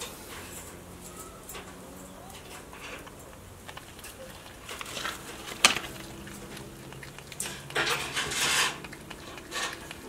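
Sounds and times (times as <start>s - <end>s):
porcupine chewing and crunching: 0.0s - 10.0s.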